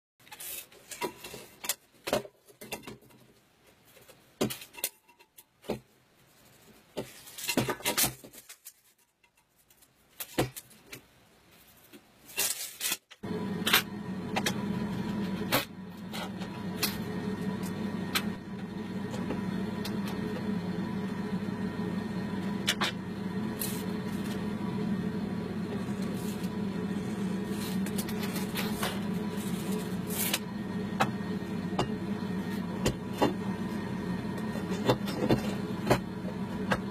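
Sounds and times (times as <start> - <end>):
steady hum: 13.2 - 36.9.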